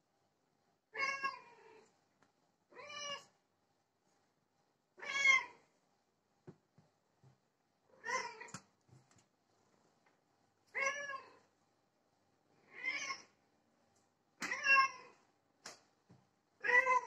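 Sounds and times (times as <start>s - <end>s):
cat meowing: 2.7s - 3.3s, 5.0s - 5.6s, 10.7s - 11.4s, 12.7s - 13.3s, 16.6s - 17.0s.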